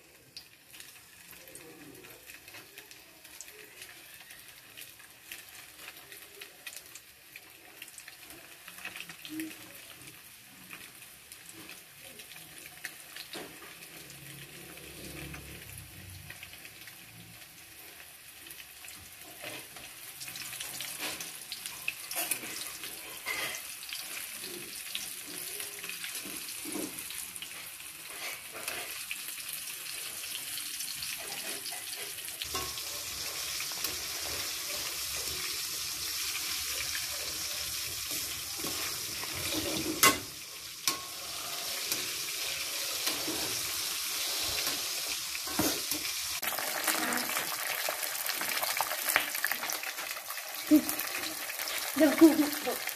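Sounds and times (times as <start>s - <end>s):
food sizzling in hot oil: 0.0s - 52.9s
metal spatula scraping wok: 22.1s - 23.7s, 26.5s - 29.1s, 31.2s - 36.6s, 37.2s - 47.2s.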